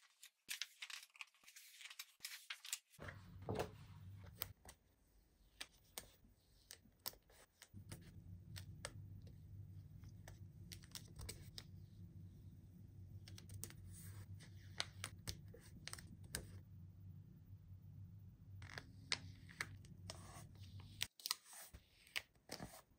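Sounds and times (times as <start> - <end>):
low steady hum: 7.7 - 21.1.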